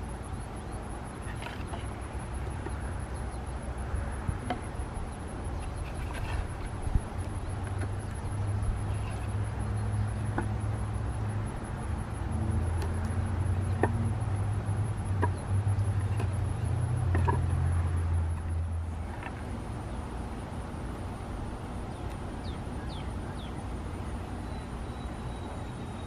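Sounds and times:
low steady hum: 0:00.0 - 0:26.0
wooden logs knocking: 0:13.7 - 0:14.1.

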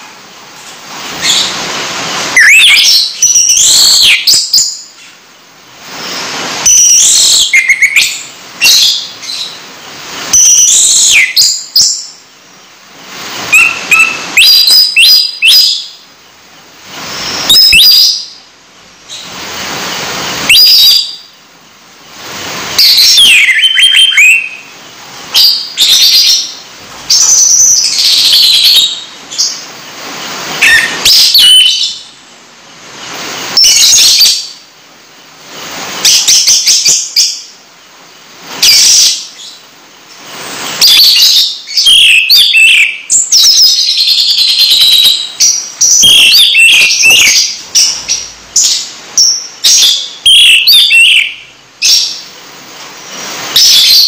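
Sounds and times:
songbird chirping and whistling: 0:01.1 - 0:05.2, 0:06.0 - 0:16.0, 0:17.0 - 0:21.4, 0:22.7 - 0:29.7, 0:30.6 - 0:32.2, 0:38.6 - 0:39.7, 0:40.6 - 0:52.3, 0:53.5 - 0:54.0.

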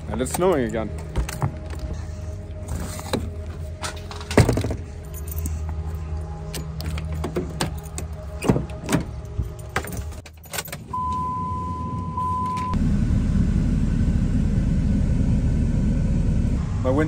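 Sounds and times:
truck engine rumbling: 0:00.0 - 0:17.0
keys jangling: 0:03.7 - 0:10.9.

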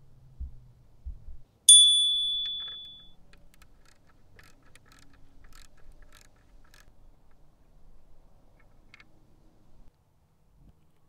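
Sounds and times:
metal tool clinking: 0:01.7 - 0:03.2
socket ratchet clicking: 0:01.7 - 0:06.9.

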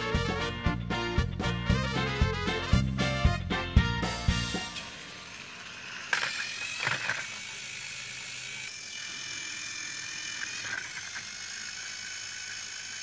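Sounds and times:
toy train motors whirring: 0:04.4 - 0:13.0.

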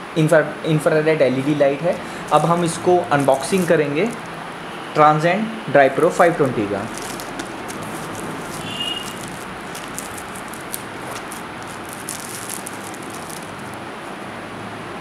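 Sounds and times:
plastic wrap crinkling: 0:02.0 - 0:04.4, 0:06.0 - 0:14.1.

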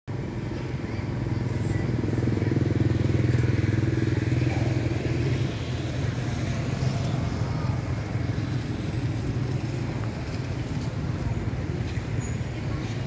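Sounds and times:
motorbike engine running: 0:01.5 - 0:11.2.

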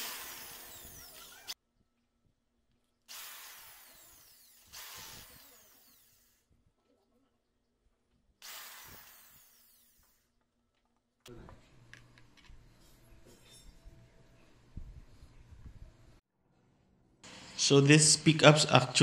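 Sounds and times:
power drill boring: 0:00.0 - 0:01.6, 0:03.1 - 0:06.4, 0:08.4 - 0:10.2.

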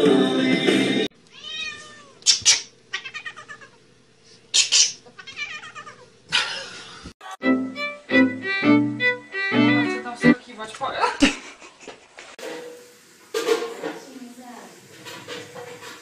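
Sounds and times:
cat meowing and yowling: 0:01.3 - 0:02.2, 0:02.9 - 0:03.8, 0:05.2 - 0:06.0.

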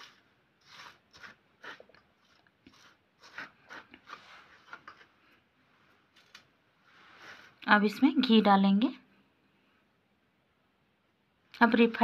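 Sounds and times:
hand mixing flour in a bowl: 0:00.0 - 0:05.4.

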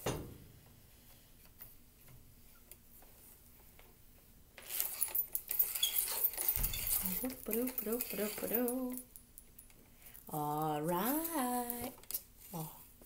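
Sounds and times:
handling rustle: 0:04.6 - 0:13.0.

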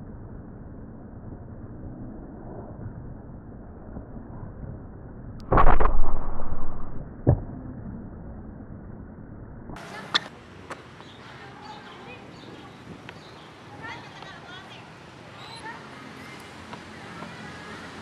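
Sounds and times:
loud rushing whoosh: 0:05.4 - 0:07.2
sharp hit: 0:05.4 - 0:07.2.

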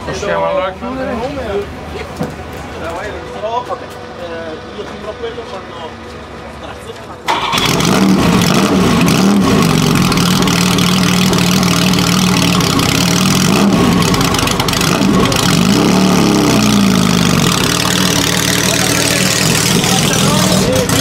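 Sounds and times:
car engine idling and revving: 0:07.3 - 0:21.0.

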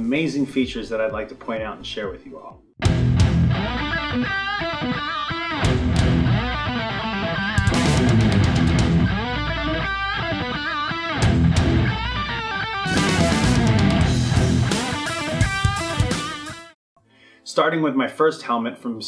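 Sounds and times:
distorted electric guitar riffs: 0:02.8 - 0:16.8
hard rock music: 0:02.8 - 0:16.8.

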